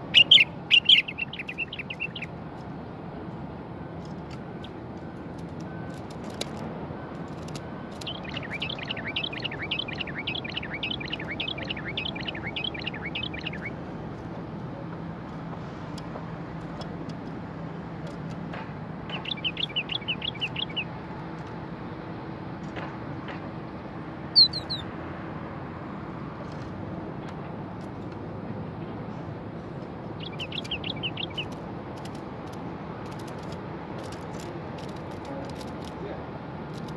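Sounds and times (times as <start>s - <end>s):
bird calling repeated notes: 0.0s - 2.3s, 8.0s - 13.7s, 19.1s - 20.9s, 24.4s - 24.9s, 30.2s - 31.6s.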